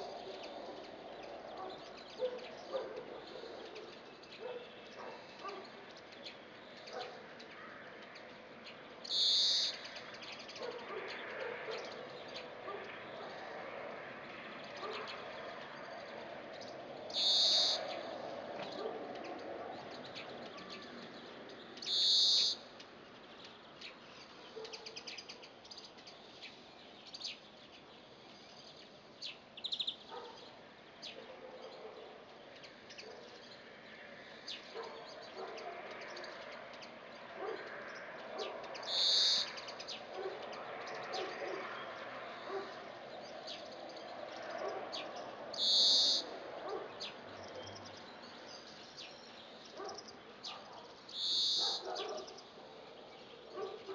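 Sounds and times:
small birds chirping: 0:00.0 - 0:53.9
finch wheezing call: 0:17.2 - 0:17.9, 0:45.6 - 0:46.3.

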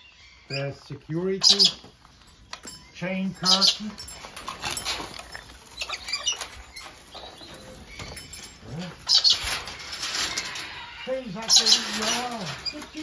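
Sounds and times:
steel chain curtain rattling: 0:02.6 - 0:13.0.

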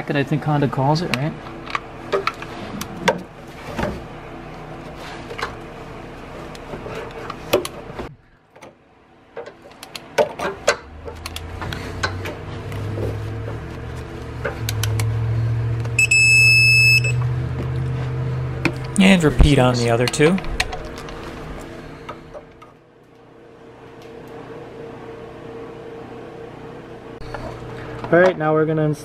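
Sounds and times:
low hum: 0:10.7 - 0:28.1
high electronic beep: 0:16.0 - 0:17.2.

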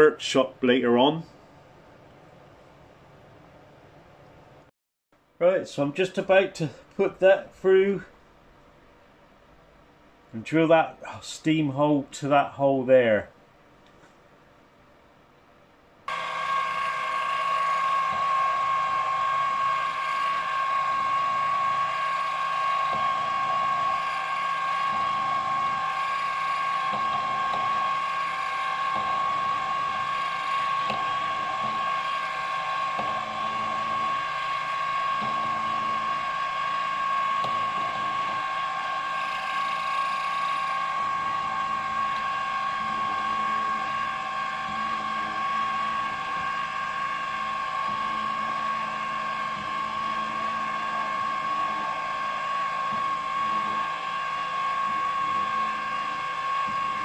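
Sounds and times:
milling machine spindle whine: 0:16.1 - 0:57.0.

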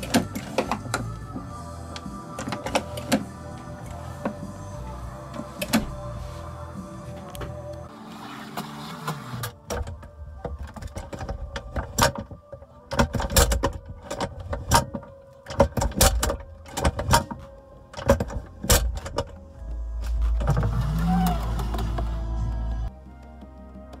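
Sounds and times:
latch and lock clicks: 0:00.0 - 0:04.5, 0:05.3 - 0:06.1, 0:09.3 - 0:19.4.

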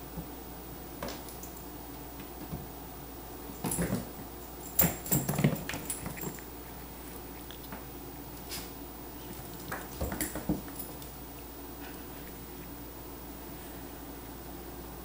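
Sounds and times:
knocks and scrabbling paws: 0:03.6 - 0:11.3.

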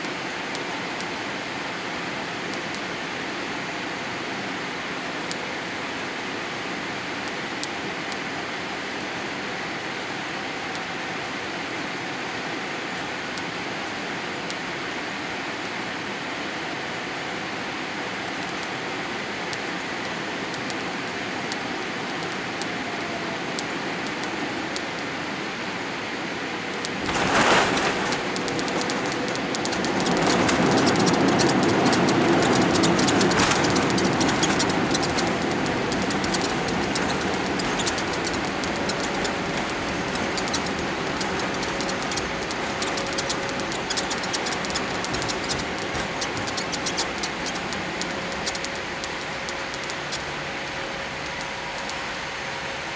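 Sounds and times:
jet engine and airflow noise: 0:00.0 - 0:52.9
rolling rumble with wheel rattling: 0:26.7 - 0:52.8
touchdown jolt: 0:27.0 - 0:48.8.

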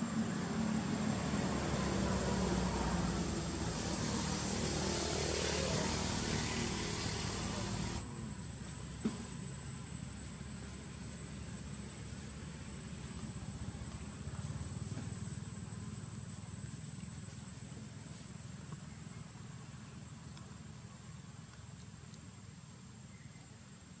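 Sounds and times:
faint ticks: 0:20.2 - 0:22.4.

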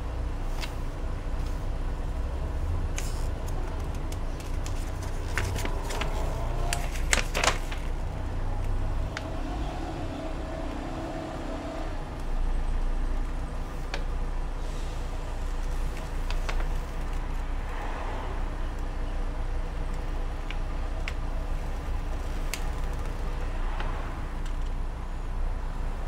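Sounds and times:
paper leaflet rustling: 0:03.0 - 0:08.0.

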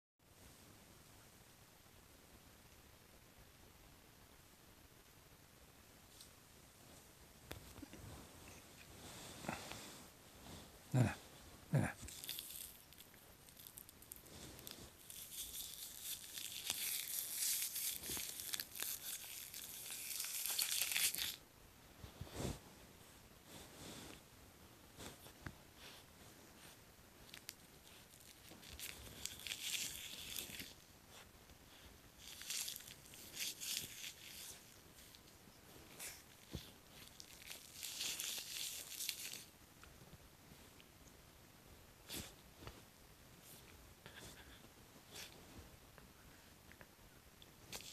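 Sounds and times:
plastic crinkling: 0:12.0 - 0:21.4, 0:27.3 - 0:30.8, 0:32.2 - 0:35.2, 0:36.4 - 0:39.5.

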